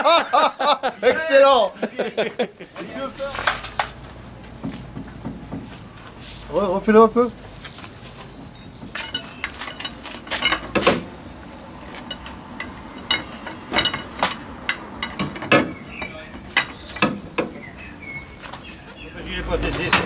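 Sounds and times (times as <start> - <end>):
steel tools clinking: 8.2 - 17.4.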